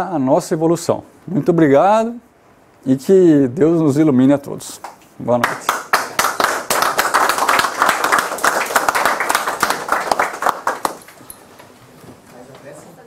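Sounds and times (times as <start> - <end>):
audience applauding: 5.4 - 11.3.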